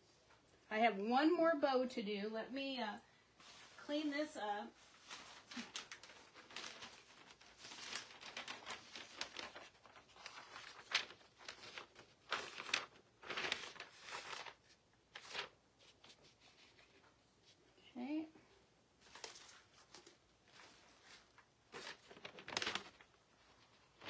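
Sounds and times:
newsprint rustling and crinkling: 3.4 - 15.5, 19.0 - 24.0.

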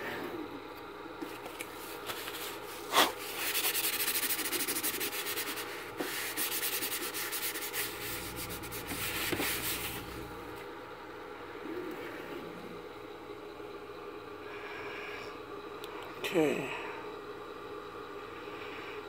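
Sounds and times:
rapid scratchy rubbing: 1.8 - 10.2.

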